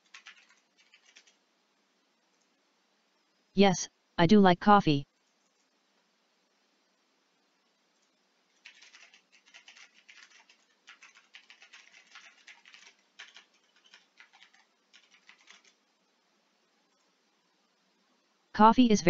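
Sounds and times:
typing on computer keyboard: 0.0 - 1.4, 8.5 - 15.8.

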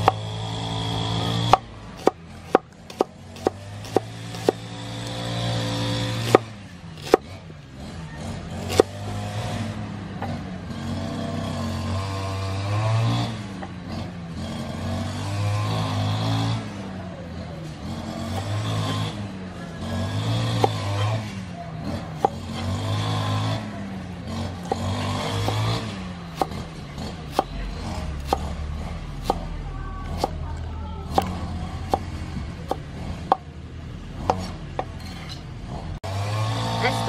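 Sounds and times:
cleaver chopping on wooden board: 0.0 - 0.2, 1.2 - 5.2, 6.1 - 7.3, 8.6 - 9.0, 18.2 - 19.0, 20.2 - 21.1, 22.1 - 22.8, 24.6 - 26.6, 27.3 - 28.6, 29.2 - 29.5, 30.1 - 30.4, 31.1 - 32.1, 32.7 - 33.5, 34.2 - 35.0.

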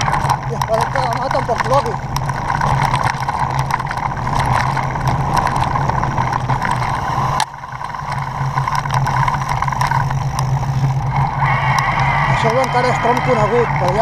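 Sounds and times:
stones clicking and rattling: 0.0 - 11.2
off-road motorcycle engine: 0.0 - 14.0.

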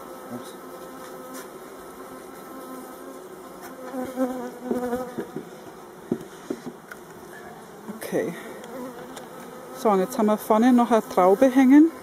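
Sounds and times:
honeybees buzzing: 0.0 - 12.0
wooden knocks: 4.7 - 5.5.

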